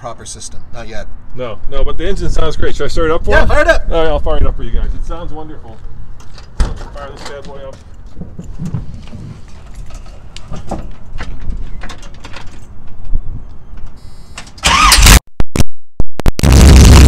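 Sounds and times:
truck engine starting and running: 14.0 - 15.2
low rumbling: 16.4 - 17.0.

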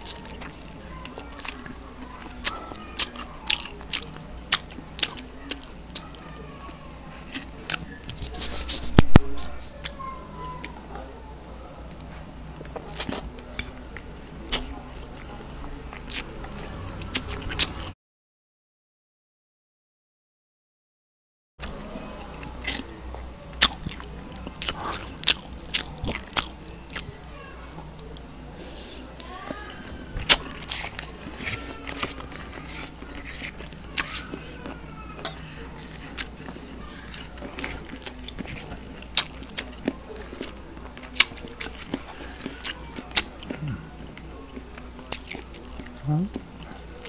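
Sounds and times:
chewing noodles: 0.0 - 10.0, 10.6 - 17.9, 21.6 - 47.0
fork scraping a plate: 30.4 - 34.4.

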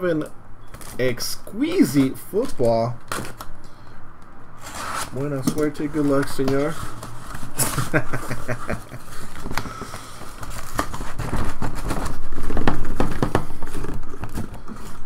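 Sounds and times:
cardboard box sliding scrape: 4.6 - 5.2
cardboard flaps rubbing and tapping: 9.3 - 15.0.

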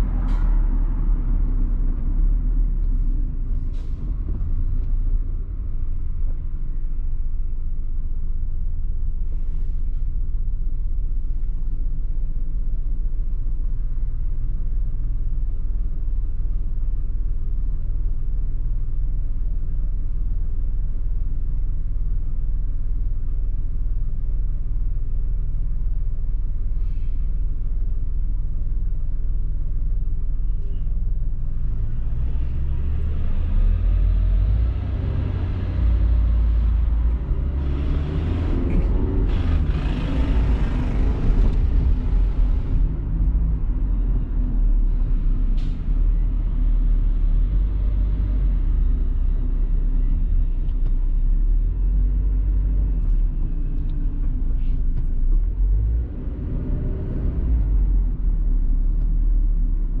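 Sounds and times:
bus pulling away: 0.0 - 7.0, 29.9 - 60.0
traffic rumble inside car: 0.0 - 60.0.

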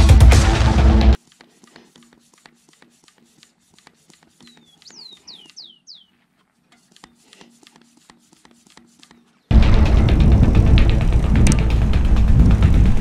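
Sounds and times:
tool clicks and hand rustles: 1.2 - 9.5
bird whistling falling notes: 4.5 - 6.1.

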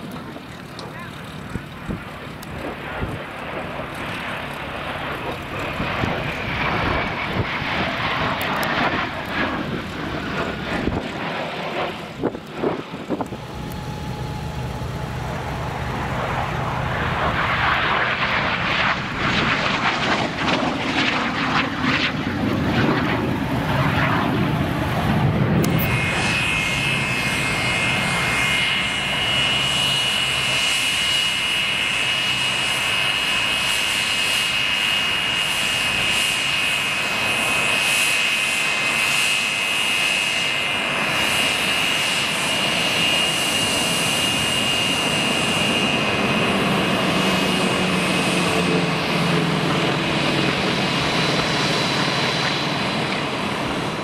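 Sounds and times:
jet flying overhead: 0.0 - 54.0
turbojet whine at taxi power: 0.0 - 54.0.

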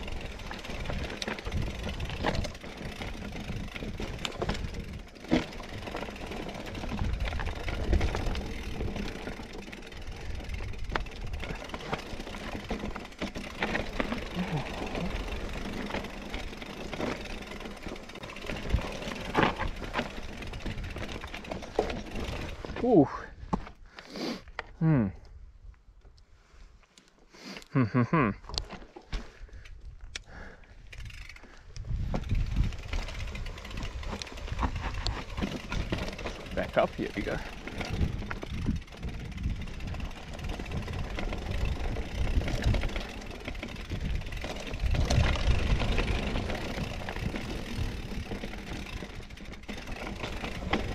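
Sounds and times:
wind and tyres rumbling: 0.0 - 27.0, 28.4 - 50.9
bike knocks and rattles: 0.1 - 22.8, 32.0 - 50.9.

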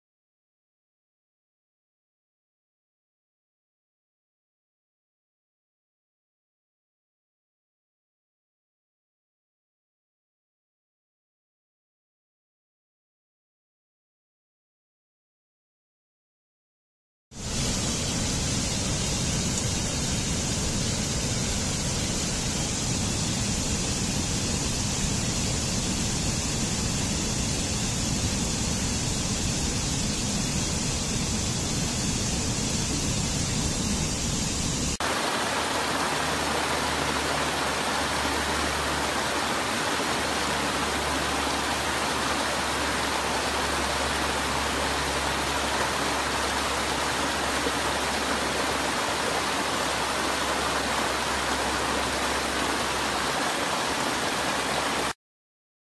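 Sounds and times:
waterfall roaring: 17.4 - 55.2.

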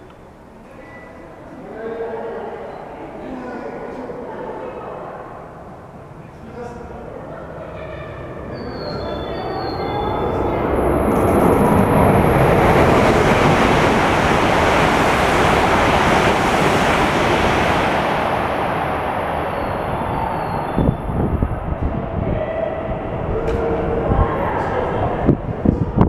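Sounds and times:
high-speed train passing: 0.0 - 26.0.

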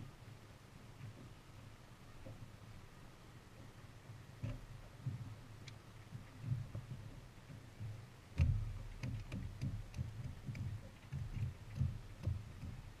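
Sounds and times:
light clicks: 5.6 - 5.8
dull thumps on boat deck: 7.8 - 13.0.

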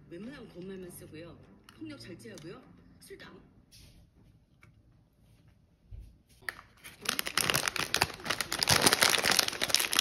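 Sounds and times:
plastic snack bag crinkling: 6.4 - 10.0.

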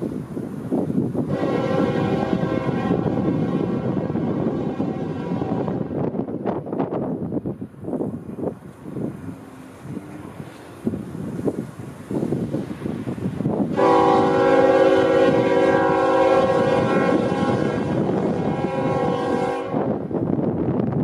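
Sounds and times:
train rumbling on rails: 0.0 - 21.0
train air horn blast: 1.3 - 6.0, 13.7 - 20.0.

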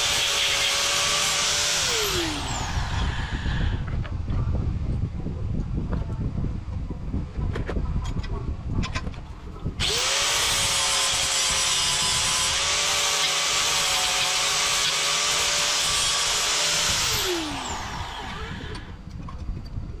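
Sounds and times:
angle grinder grinding metal: 0.0 - 3.9, 9.8 - 19.0.

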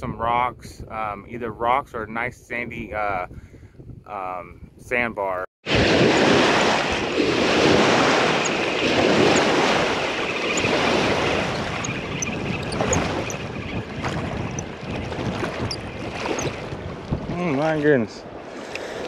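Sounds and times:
wind on microphone: 0.0 - 18.5
waves splashing against bank: 5.7 - 19.0.

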